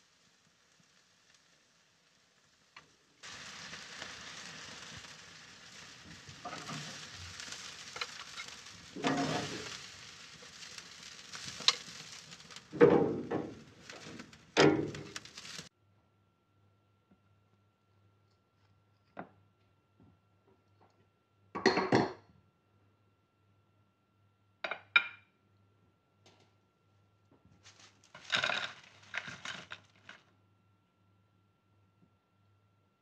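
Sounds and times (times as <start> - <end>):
ribs sizzling on a grill: 0.0 - 15.7, 27.7 - 30.2
metal tongs scraping a grate: 8.0 - 9.8.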